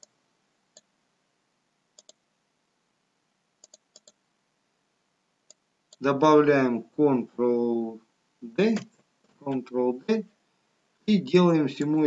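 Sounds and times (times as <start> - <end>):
faint computer mouse clicks: 2.0 - 2.2, 3.6 - 4.2.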